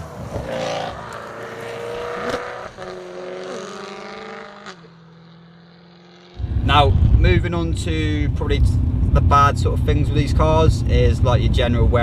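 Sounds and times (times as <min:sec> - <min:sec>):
car engine exhaust note: 0:03.9 - 0:12.0.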